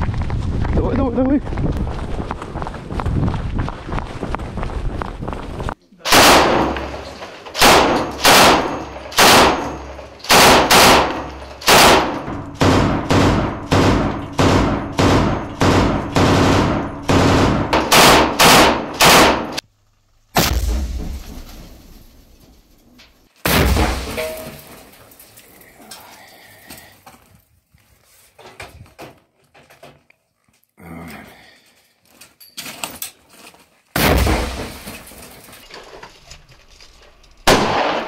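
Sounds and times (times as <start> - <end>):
machine gun shots with echo: 6.1 - 7.0, 7.6 - 19.6, 37.5 - 38.0.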